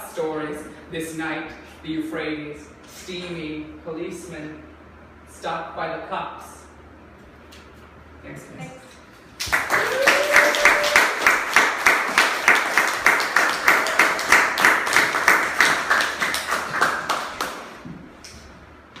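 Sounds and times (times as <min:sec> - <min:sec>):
audience applauding: 0:09.4 - 0:17.8
person whooping: 0:09.6 - 0:11.3.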